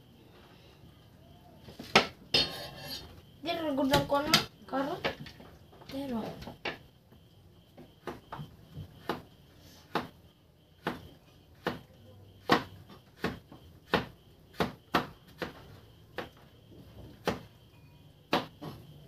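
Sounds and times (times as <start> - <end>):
knife chopping on cutting board: 9.0 - 9.3, 9.9 - 10.1, 10.8 - 15.6.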